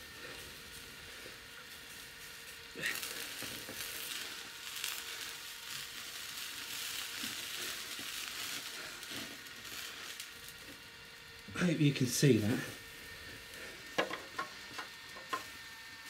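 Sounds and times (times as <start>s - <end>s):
meat juices sizzling: 0.0s - 16.0s
scattered pops: 13.9s - 15.5s.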